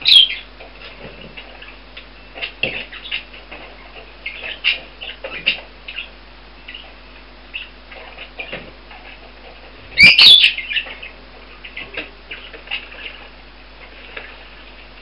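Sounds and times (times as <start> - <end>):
budgerigars chirping softly: 0.0 - 0.5, 1.4 - 9.1, 9.9 - 13.3
loud wavering bird call: 10.0 - 10.9.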